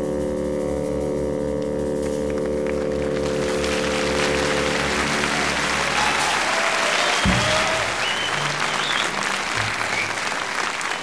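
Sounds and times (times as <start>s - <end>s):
audience applause: 2.3s - 11.0s.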